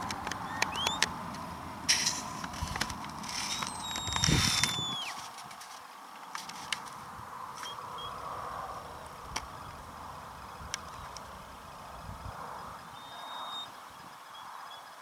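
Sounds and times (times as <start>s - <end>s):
sharp clicks: 0.0s - 5.3s
shepherd's whistle: 0.5s - 1.0s, 3.6s - 5.2s, 13.0s - 13.7s.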